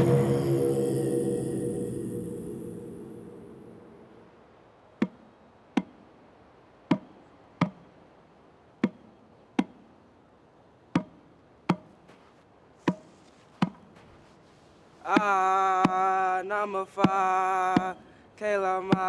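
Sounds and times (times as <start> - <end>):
sharp percussive knocks: 17.8 - 18.0.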